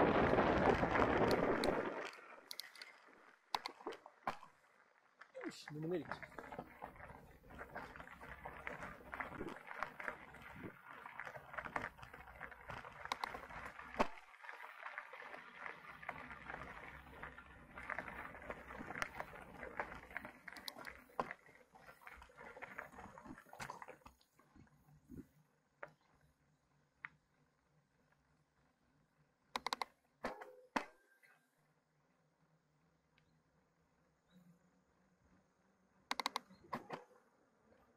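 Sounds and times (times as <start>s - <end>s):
bike tyres crunching on dirt: 0.0s - 29.3s
bike clicks and rattles: 0.1s - 4.6s, 5.2s - 26.4s, 29.6s - 31.3s, 36.0s - 37.3s.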